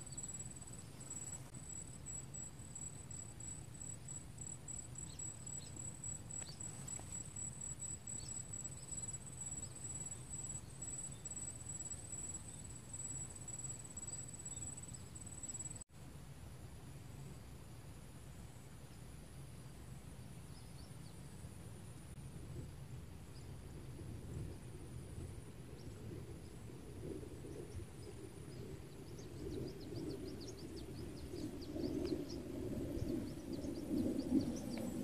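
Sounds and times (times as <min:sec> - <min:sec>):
insects trilling: 0:00.0 - 0:15.8, 0:25.8 - 0:35.0
low outdoor background hum: 0:00.0 - 0:35.0.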